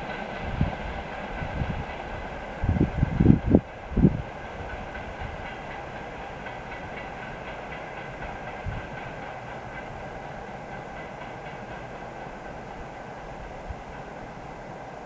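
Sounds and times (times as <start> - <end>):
train wheels clicking over rail joints: 0.0 - 15.0.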